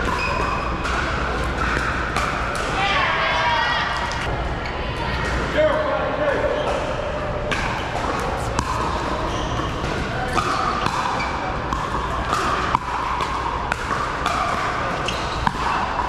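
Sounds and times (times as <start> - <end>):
paddles striking pickleball: 0.0 - 2.9, 7.5 - 16.0
murmur of voices: 0.0 - 16.0.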